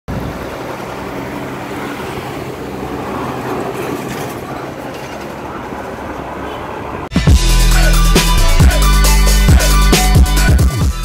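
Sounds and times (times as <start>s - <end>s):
traffic engine hum and tyre noise: 0.1s - 7.2s
heavy truck engine passing: 0.1s - 8.9s.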